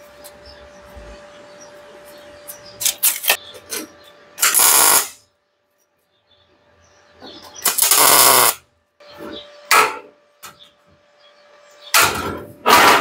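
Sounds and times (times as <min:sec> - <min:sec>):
welding arc crackling: 0:04.4 - 0:05.2, 0:07.6 - 0:08.6.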